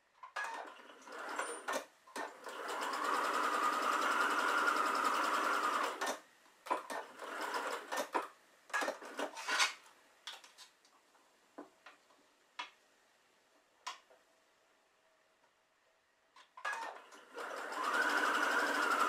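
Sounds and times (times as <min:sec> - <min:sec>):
sewing machine stitching: 0:00.4 - 0:09.4, 0:16.6 - 0:19.0.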